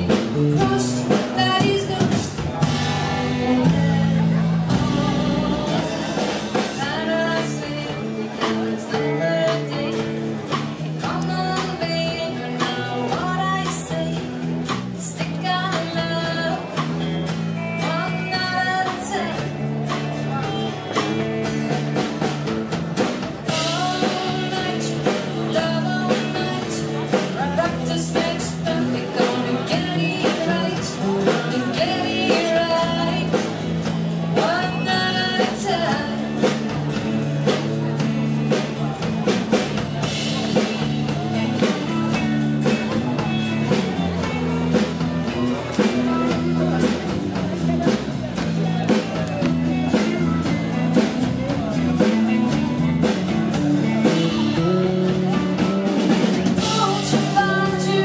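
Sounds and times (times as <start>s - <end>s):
person singing: 0.0s - 20.8s, 23.5s - 36.7s, 48.6s - 58.0s
acoustic and electric guitars: 0.0s - 58.0s
drum kit beat: 0.0s - 58.0s.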